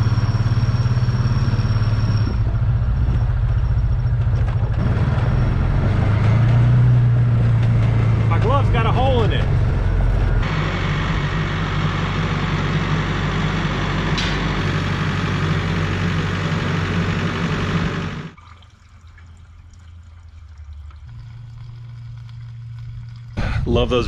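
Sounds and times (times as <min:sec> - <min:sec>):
diesel tractor engine humming: 0:00.0 - 0:24.0
fuel pouring from can: 0:18.4 - 0:23.8.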